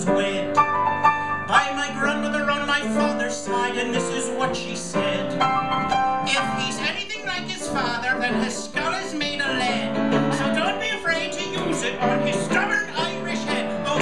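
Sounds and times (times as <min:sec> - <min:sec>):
man singing: 0:00.0 - 0:14.0
piano accompaniment: 0:00.0 - 0:14.0.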